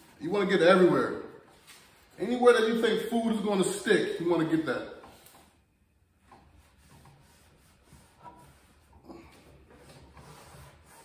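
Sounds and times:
hand rubbing paper towel on griddle: 6.2 - 11.0.

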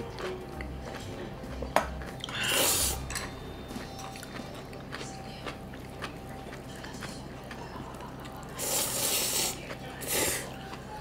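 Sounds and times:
noodles being slurped: 8.5 - 10.6.

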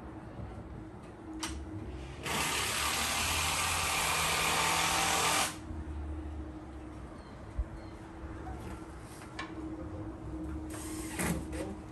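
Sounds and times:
power tool running: 2.2 - 5.6.

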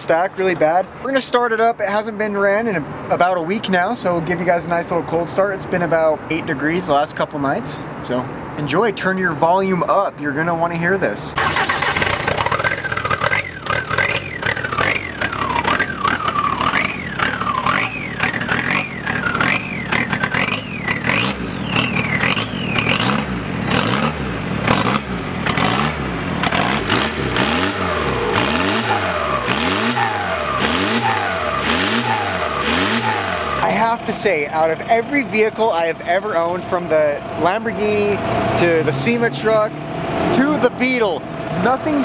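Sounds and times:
diesel engine revving: 11.3 - 42.0
high turbo whistle: 13.4 - 23.1, 35.6 - 39.2.

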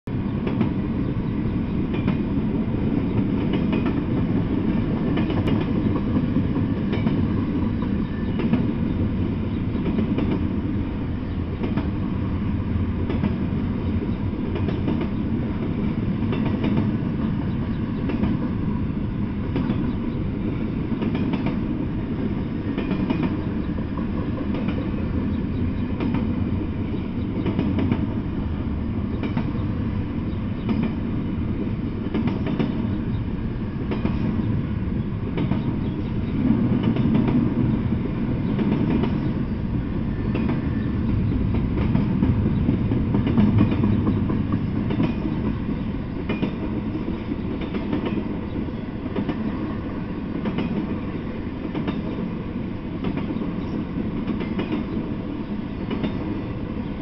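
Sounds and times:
freight train rumbling past: 0.0 - 57.0
wheels clicking over rail joints: 40.2 - 49.6, 50.3 - 52.2.

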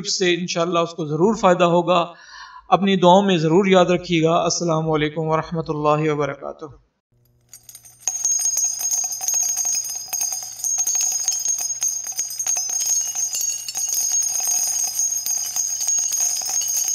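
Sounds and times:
jingling bells and chimes music: 7.5 - 16.9.

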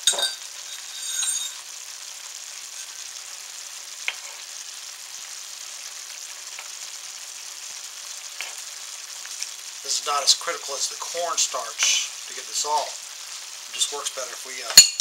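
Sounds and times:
metal spoon clinking: 0.0 - 1.6, 14.8 - 15.0
sauce bubbling and sizzling: 0.0 - 15.0
spoon clicking against pan: 4.0 - 4.3.

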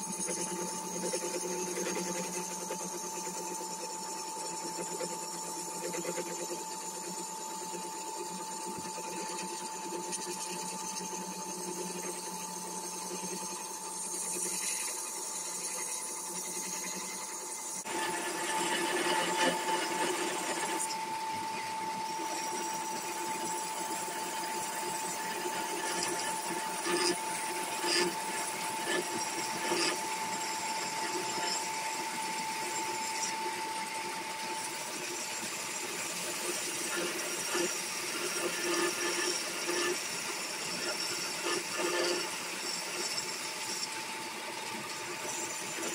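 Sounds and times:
turning tool cutting wood: 0.0 - 45.9
wood lathe humming: 17.8 - 45.9.

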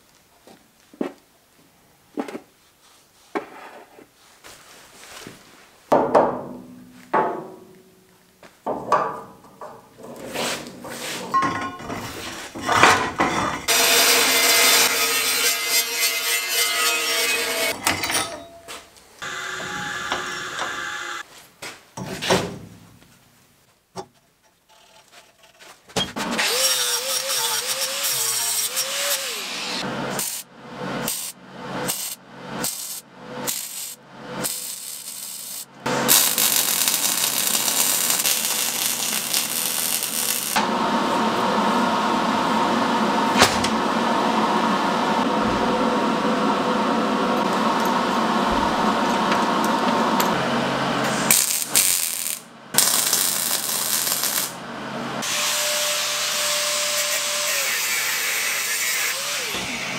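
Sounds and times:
welder crackling: 31.9 - 40.7, 51.2 - 54.6.

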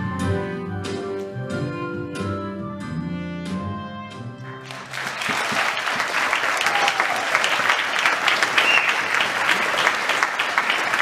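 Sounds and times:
audience applause: 4.6 - 11.0.

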